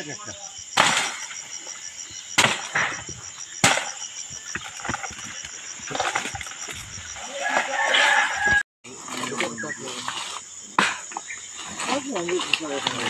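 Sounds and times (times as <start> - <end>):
insects chirping: 0.0 - 13.0
axe chopping palm trunk: 2.4 - 5.2.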